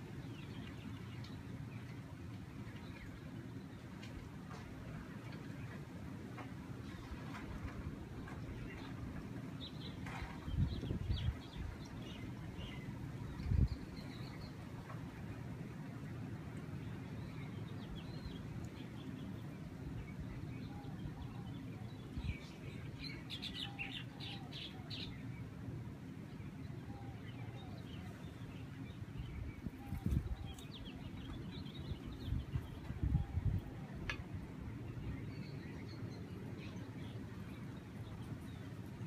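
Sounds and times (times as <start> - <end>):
low rumble of breeze: 0.0 - 39.0
small birds chirping: 8.2 - 14.7, 16.6 - 25.6, 26.2 - 39.0.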